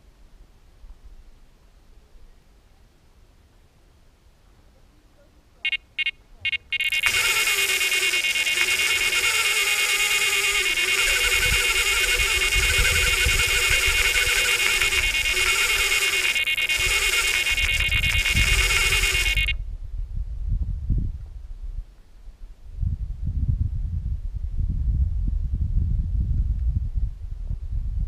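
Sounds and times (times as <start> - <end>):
bite alarm beeps: 5.7 - 19.6
continuous high alarm tone: 5.7 - 19.6.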